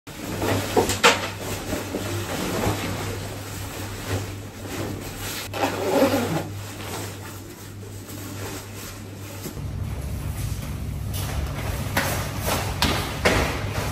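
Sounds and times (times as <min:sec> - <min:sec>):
nylon jacket rustling: 0:01.4 - 0:09.6
steady low hum: 0:01.4 - 0:13.9.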